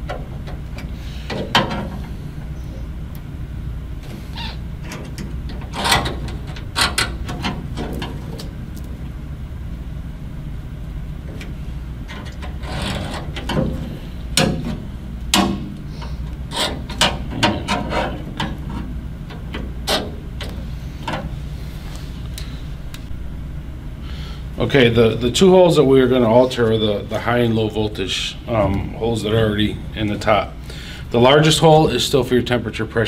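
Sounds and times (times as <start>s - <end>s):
steady low hum: 0.0s - 33.0s
metal scribe scratching on metal: 5.6s - 7.6s, 12.1s - 14.8s, 15.9s - 19.0s.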